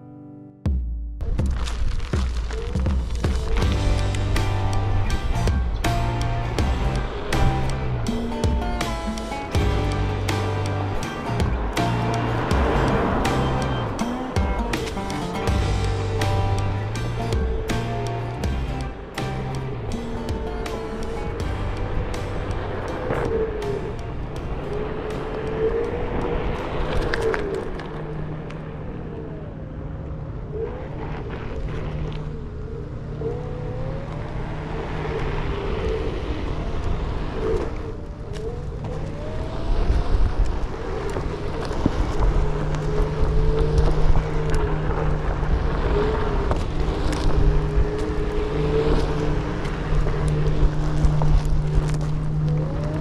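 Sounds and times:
tyre rolling on asphalt: 1.3 - 28.3, 36.7 - 53.0.

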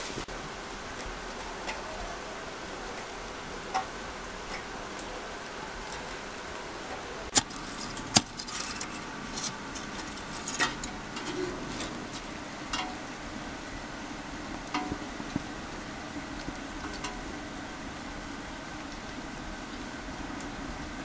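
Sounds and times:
rain hissing: 0.0 - 21.0
charcoal clinking in metal grill: 7.3 - 13.2, 14.6 - 15.4, 16.4 - 17.3.

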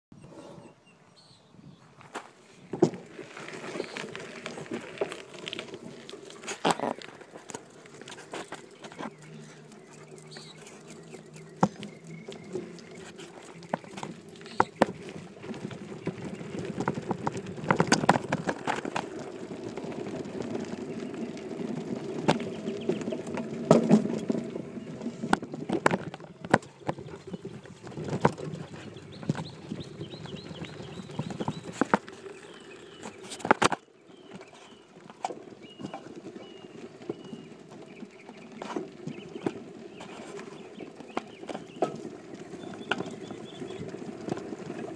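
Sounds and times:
bike tyres rumbling on gravel: 1.8 - 44.9
bike rattling knocks: 2.7 - 32.2.

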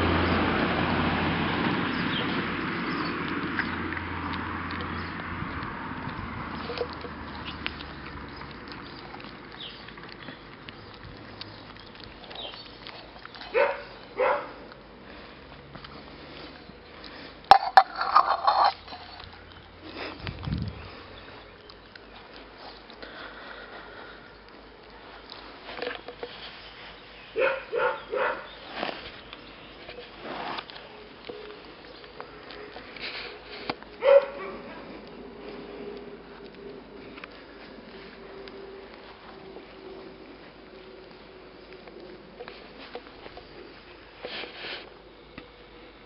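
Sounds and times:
puppies licking and chewing: 0.1 - 46.0
rustling: 6.6 - 45.0
puppy barking: 13.5 - 14.6, 27.4 - 28.5, 34.0 - 34.8.

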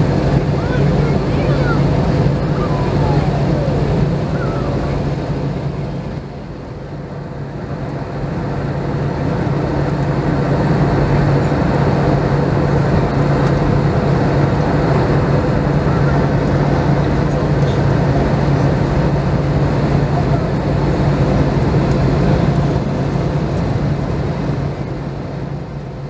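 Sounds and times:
airflow past fuselage: 0.0 - 25.6
jet engine drone: 0.0 - 26.0
low hum: 0.0 - 26.0.

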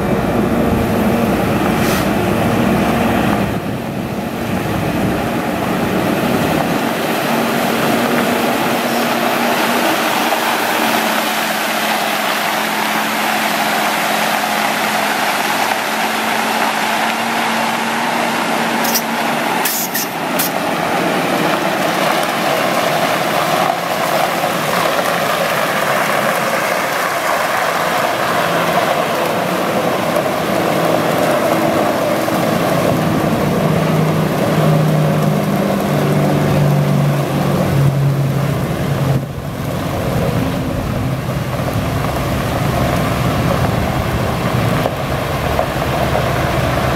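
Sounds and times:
diesel truck engine running: 0.0 - 46.9
water spray hissing: 18.8 - 20.6.

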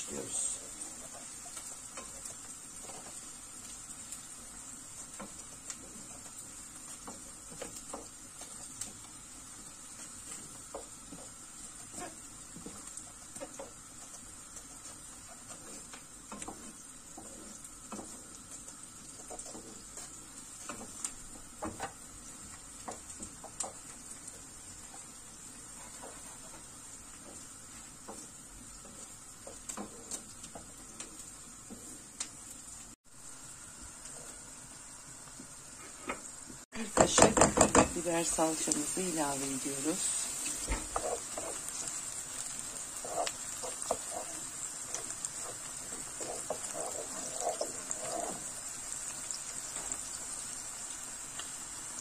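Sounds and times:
steady high hiss: 0.0 - 0.8.

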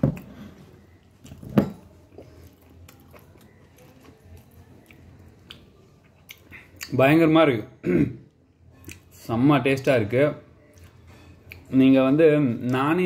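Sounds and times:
person chewing crunchy food: 1.2 - 6.9.

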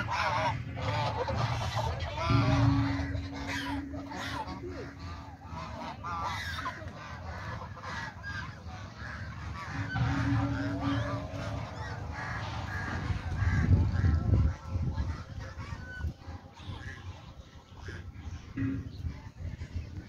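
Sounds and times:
fowl honking: 0.0 - 20.0
low rumble: 2.1 - 6.0, 8.9 - 15.3.

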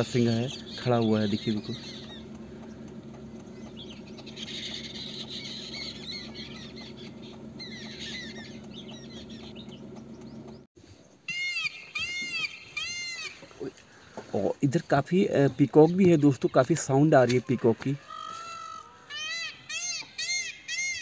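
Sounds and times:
peafowl calling: 0.0 - 10.6, 11.2 - 14.3, 17.2 - 21.0
steady low hum: 0.0 - 10.7
birds chirping: 0.0 - 21.0.

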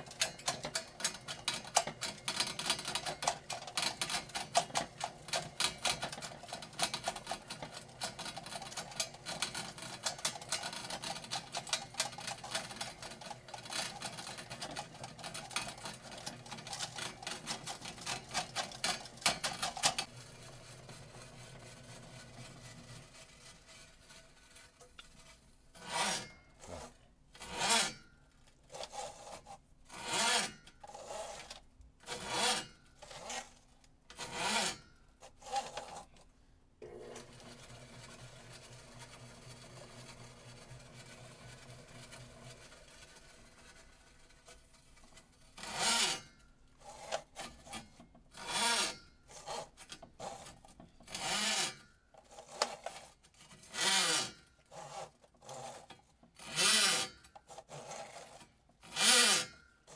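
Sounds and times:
drain snake cable rasping: 40.1 - 59.9.

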